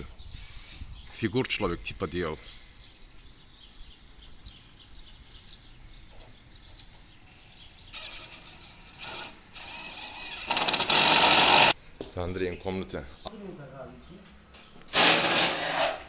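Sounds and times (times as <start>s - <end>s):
birds chirping faintly: 0.0s - 9.4s, 11.7s - 14.9s
power drill running in bursts: 9.0s - 11.8s.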